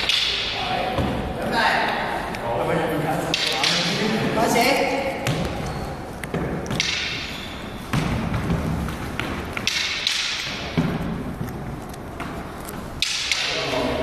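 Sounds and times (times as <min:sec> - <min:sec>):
sharp knocks: 0:06.3 - 0:07.3.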